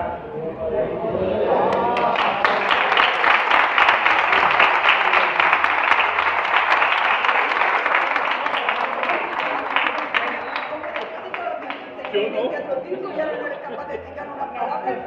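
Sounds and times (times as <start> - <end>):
audience applauding: 1.7 - 12.4.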